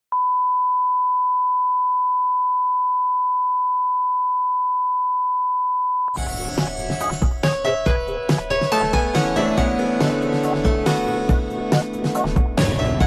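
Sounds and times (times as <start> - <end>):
single-pitch test tone: 0.1 - 6.2
music: 6.2 - 13.0.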